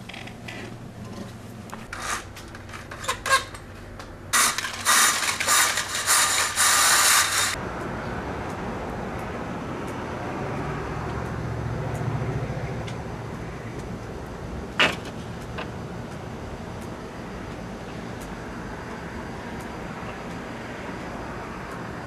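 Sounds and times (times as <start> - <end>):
window blind clicks: 4.4 - 7.6.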